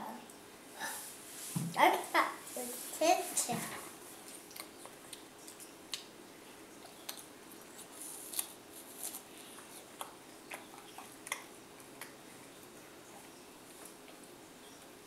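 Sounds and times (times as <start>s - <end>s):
faint steady hum: 0.0s - 15.0s
toddler biting apple crunches: 6.8s - 12.2s.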